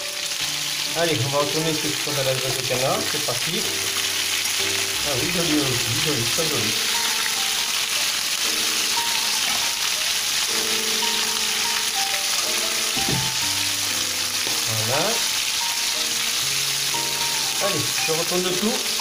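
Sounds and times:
chicken sizzling in a pan: 0:00.0 - 0:19.0
soft background music: 0:00.0 - 0:19.0.

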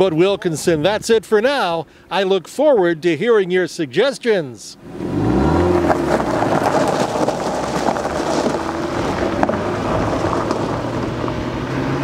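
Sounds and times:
car engine pulling away: 0:04.8 - 0:12.0
tyres crunching over gravel: 0:05.1 - 0:11.4
gravel ticks: 0:05.6 - 0:11.4.

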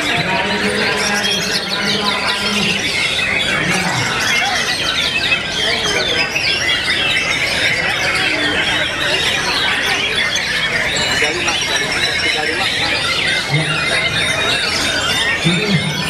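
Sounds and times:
chorus of songbirds singing: 0:00.0 - 0:16.0.

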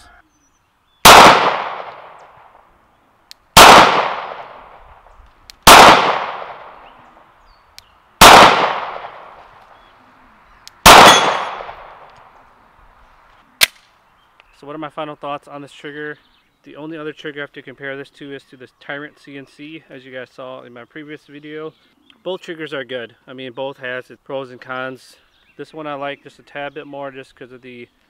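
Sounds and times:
pistol shots echoing: 0:01.0 - 0:02.5, 0:03.6 - 0:04.8, 0:05.6 - 0:06.9, 0:08.2 - 0:09.4, 0:10.8 - 0:12.1.

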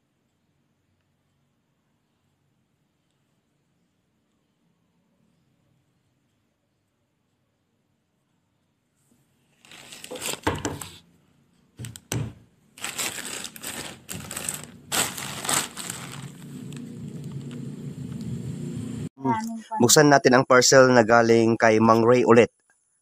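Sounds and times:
plastic bag crinkling: 0:09.6 - 0:11.0, 0:12.8 - 0:17.6.

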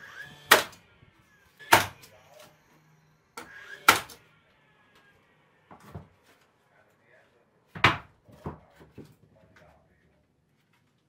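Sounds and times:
nail gun firing: 0:00.5 - 0:00.8, 0:03.8 - 0:04.2.

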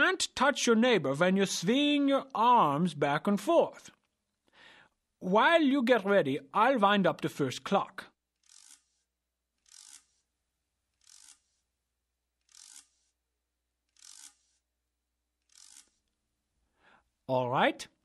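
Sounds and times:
clock key winding: 0:09.6 - 0:10.1, 0:12.4 - 0:13.0, 0:13.9 - 0:14.6, 0:15.4 - 0:16.0.

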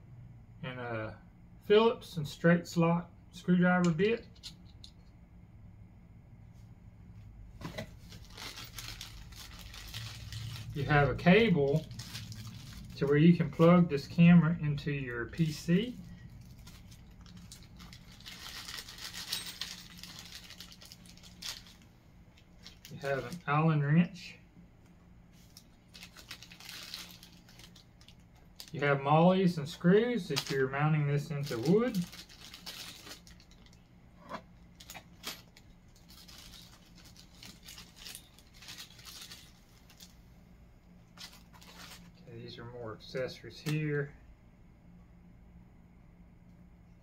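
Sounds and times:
plastic bags crinkling: 0:07.9 - 0:14.3, 0:15.2 - 0:23.6, 0:25.4 - 0:33.9, 0:34.6 - 0:40.2, 0:41.1 - 0:42.2.

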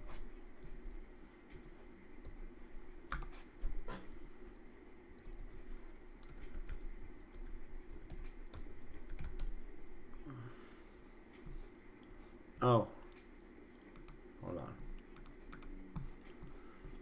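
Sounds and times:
typing on keyboard: 0:06.2 - 0:09.9, 0:15.1 - 0:15.8.

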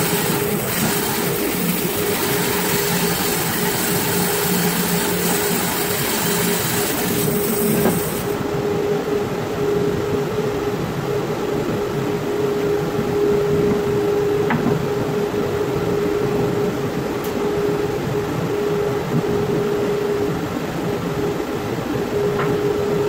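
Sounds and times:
bandsaw blade cutting wood: 0:00.0 - 0:08.4
bandsaw running free: 0:00.0 - 0:08.4.

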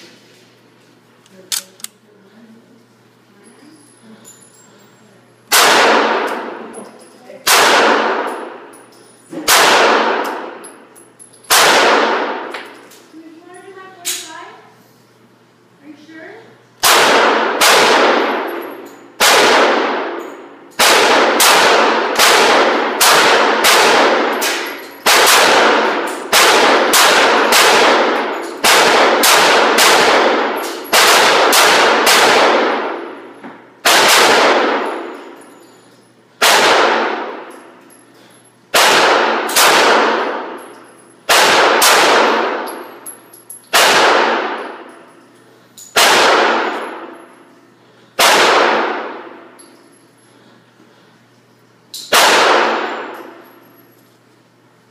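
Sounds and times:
pistol shots echoing: 0:05.5 - 0:06.6, 0:07.4 - 0:08.8, 0:09.4 - 0:10.7, 0:11.5 - 0:12.7, 0:16.8 - 0:35.2, 0:36.4 - 0:37.7, 0:38.7 - 0:43.1, 0:43.7 - 0:45.0, 0:45.9 - 0:47.3, 0:48.2 - 0:49.6, 0:52.0 - 0:53.5.

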